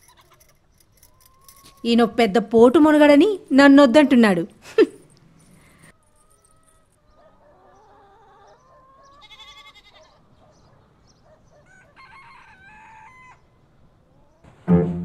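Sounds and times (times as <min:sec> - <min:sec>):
chickens clucking: 0:06.3 - 0:13.4, 0:14.0 - 0:14.9
rooster crowing: 0:11.6 - 0:13.5.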